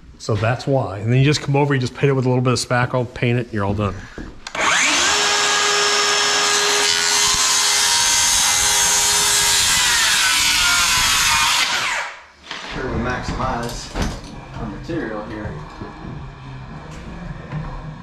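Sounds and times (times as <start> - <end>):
circular saw cutting boards: 4.5 - 12.8.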